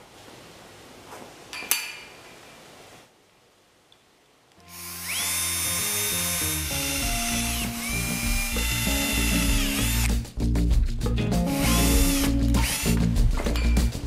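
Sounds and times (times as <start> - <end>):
cordless drill whining: 4.6 - 10.1, 11.6 - 13.0
background music with steady beat: 4.6 - 14.0.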